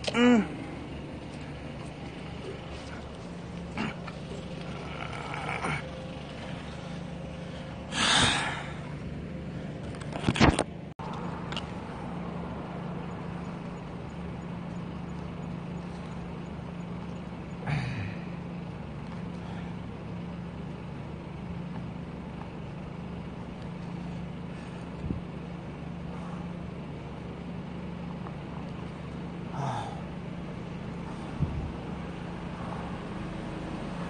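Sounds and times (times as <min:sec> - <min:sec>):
low engine hum: 0:00.0 - 0:34.0.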